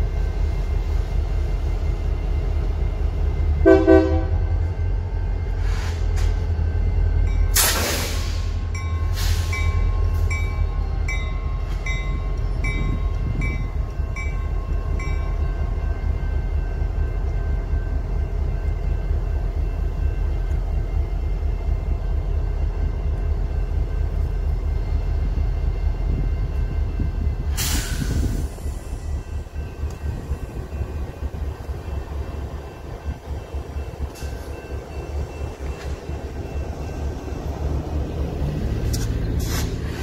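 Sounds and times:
diesel locomotive rumble: 0.0s - 40.0s
railroad crossing bell: 6.2s - 7.6s, 8.7s - 27.6s, 28.5s - 39.1s
short hiss: 7.6s - 9.6s.

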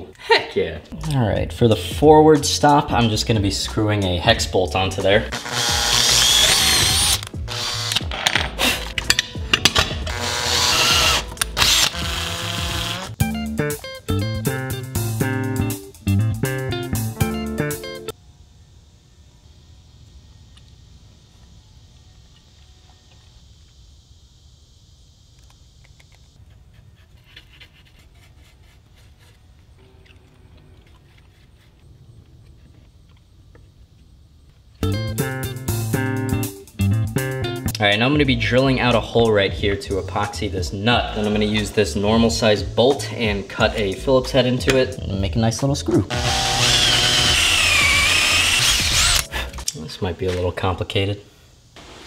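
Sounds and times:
power drill boring into steel: 5.3s - 8.1s, 10.0s - 13.2s, 46.1s - 49.3s
high hiss: 18.2s - 26.4s, 49.2s - 52.0s
stick scraping over wood: 26.4s - 29.8s.

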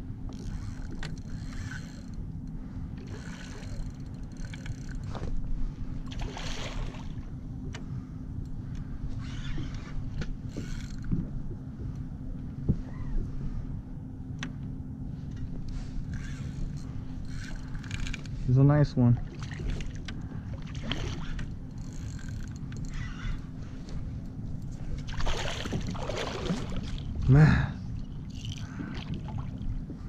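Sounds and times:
steady low rumble: 0.0s - 30.0s
water sloshing and splashing: 3.0s - 7.4s, 19.1s - 27.3s, 27.9s - 30.0s
fish thrashing splashes: 25.0s - 27.1s.

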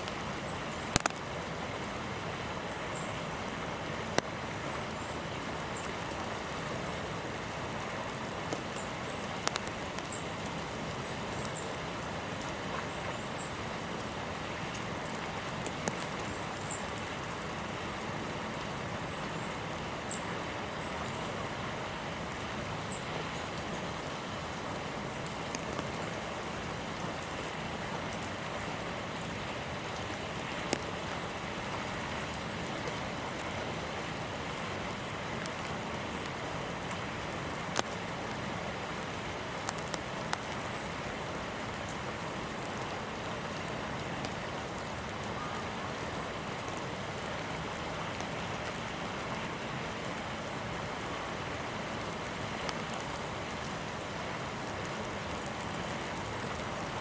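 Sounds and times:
hiss of falling precipitation: 0.0s - 57.0s
drops ticking: 0.9s - 1.2s.

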